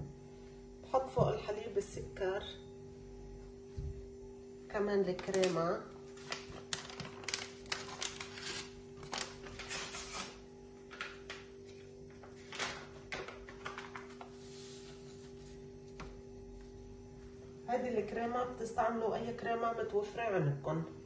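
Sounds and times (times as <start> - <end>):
steady low hum: 0.0 - 21.0
foil sachet crackling: 5.1 - 11.4.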